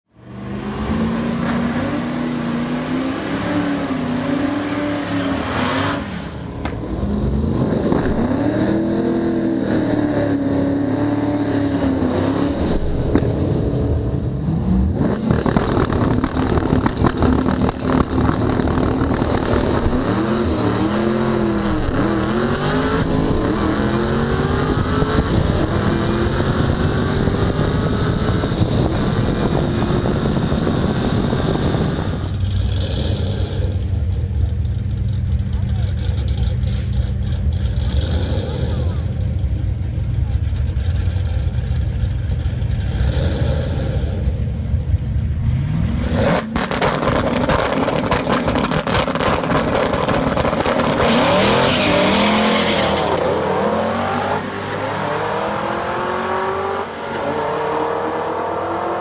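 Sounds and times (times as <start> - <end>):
car engine revving and accelerating: 0.2 - 59.0
wind rush: 24.4 - 32.4.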